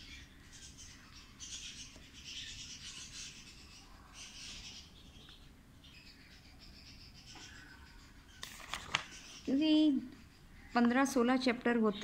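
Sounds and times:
paper pages rustling: 8.4s - 9.4s.

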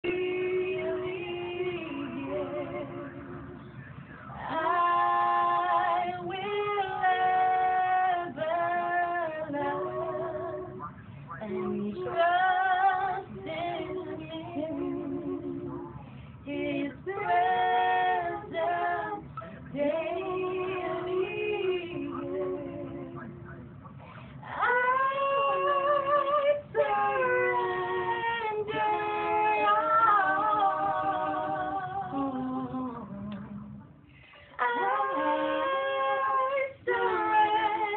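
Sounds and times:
women singing in harmony: 0.0s - 3.8s, 4.4s - 10.8s, 11.4s - 23.3s, 24.4s - 33.6s, 34.2s - 37.9s
short breaths: 16.0s - 16.4s, 24.0s - 24.4s, 34.0s - 34.6s.

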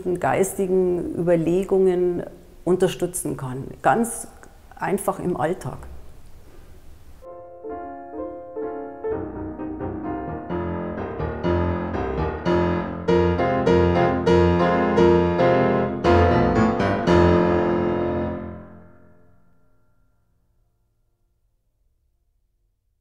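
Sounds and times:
piano music: 7.2s - 19.6s.

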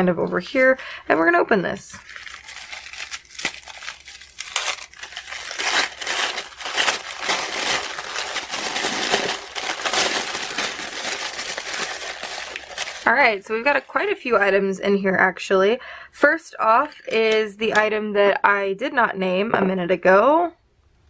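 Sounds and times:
tissue paper crinkling and rustling: 2.0s - 14.0s.

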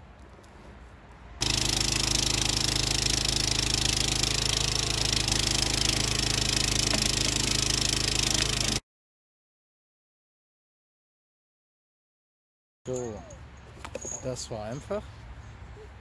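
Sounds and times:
mini backhoe engine running: 1.4s - 8.8s.

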